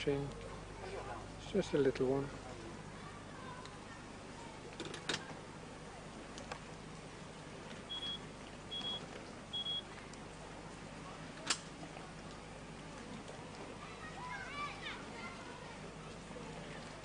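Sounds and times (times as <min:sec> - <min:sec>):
short high beeps: 0:07.9 - 0:09.0, 0:09.6 - 0:09.8.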